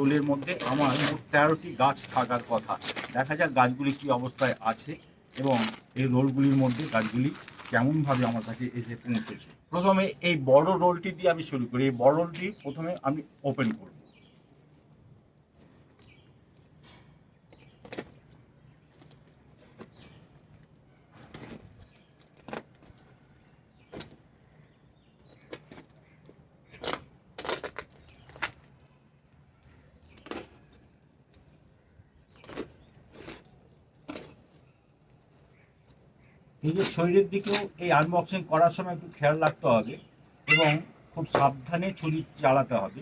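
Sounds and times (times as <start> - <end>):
knife cutting packing tape: 0.2 - 1.3.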